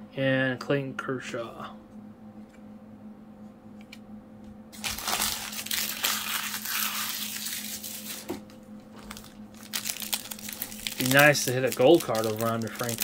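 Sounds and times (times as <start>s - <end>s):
plastic wrapper crinkling: 4.8s - 8.3s, 9.0s - 13.0s.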